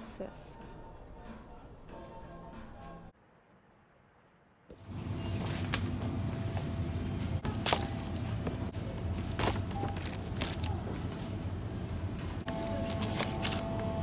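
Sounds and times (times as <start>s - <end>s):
steady low hum: 4.7s - 14.0s.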